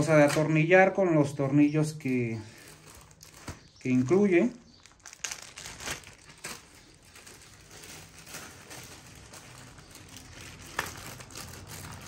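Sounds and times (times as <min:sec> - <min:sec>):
plastic sheet rustling and crinkling: 0:02.0 - 0:12.0.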